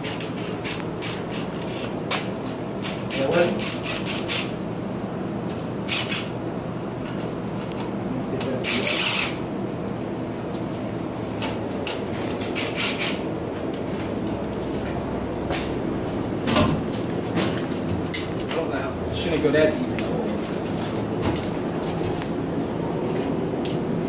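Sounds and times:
steady background hum: 0.0 - 24.0
impact driver bursts: 5.9 - 6.4, 8.6 - 9.4.

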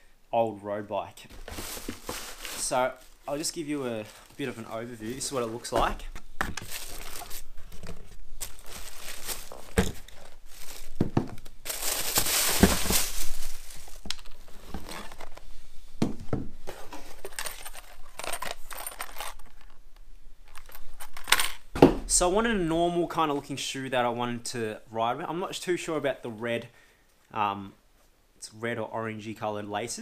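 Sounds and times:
paper and plastic bag crinkling: 1.3 - 15.4.

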